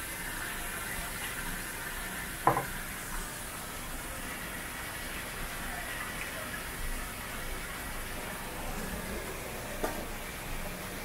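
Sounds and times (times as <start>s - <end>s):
water running from a tap: 0.0s - 11.0s
sharp knock: 2.5s - 2.7s.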